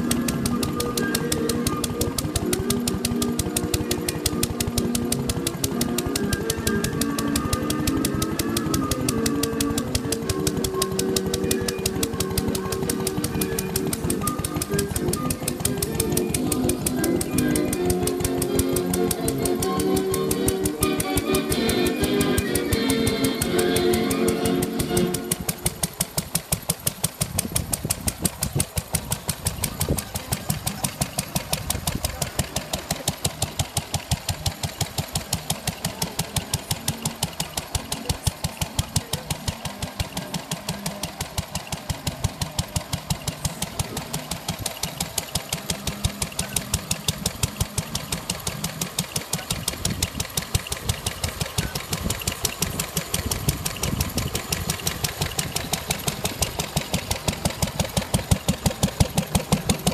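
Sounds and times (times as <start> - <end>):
single-cylinder engine running: 0.0 - 59.9.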